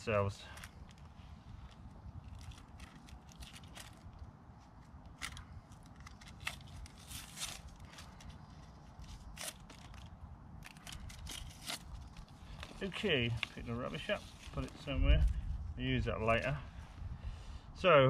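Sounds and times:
steady low rumble: 0.0s - 18.0s
packaging crinkling: 0.8s - 4.2s.

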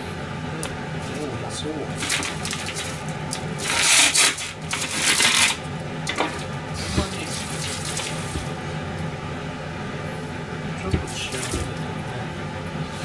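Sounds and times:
tap water gushing into sink: 2.0s - 8.6s, 10.9s - 11.8s
soft run of water: 6.3s - 8.6s.

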